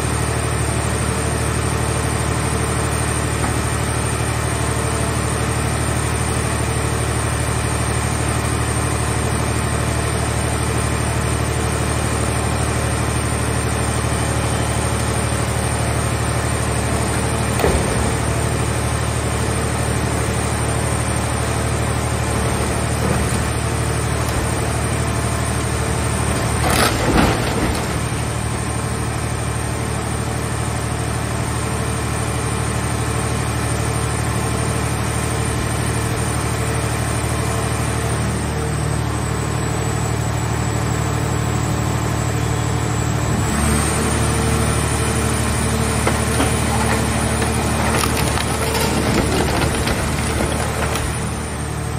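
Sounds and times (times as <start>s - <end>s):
hydraulic machine humming: 13.4s - 30.1s, 43.5s - 51.9s
car body crunching: 21.8s - 29.0s, 45.1s - 51.7s.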